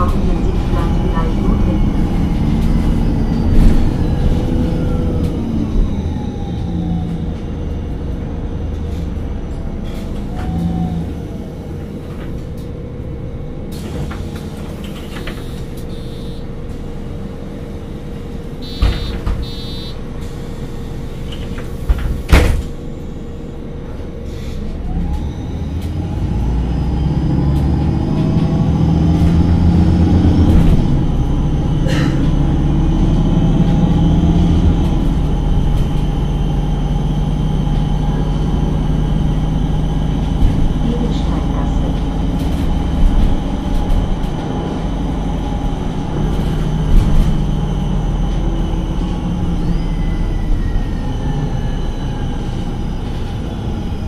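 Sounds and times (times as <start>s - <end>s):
bus engine idling: 0.0s - 54.0s
bus pulling away: 0.0s - 54.0s
beeps: 15.4s - 16.4s, 18.6s - 20.0s
loud thump: 18.7s - 19.6s.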